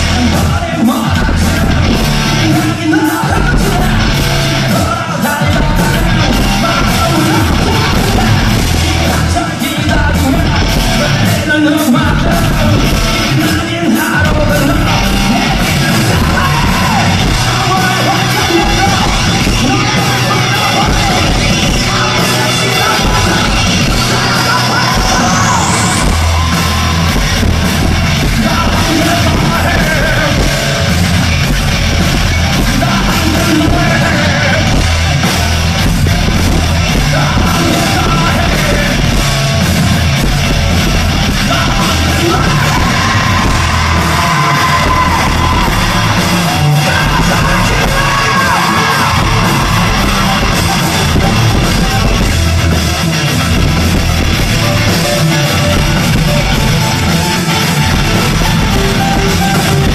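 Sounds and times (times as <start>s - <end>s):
man singing loudly: 0.0s - 27.2s, 28.2s - 31.0s, 32.6s - 35.0s, 36.9s - 39.3s, 41.2s - 52.6s
rock band playing live: 0.0s - 59.9s.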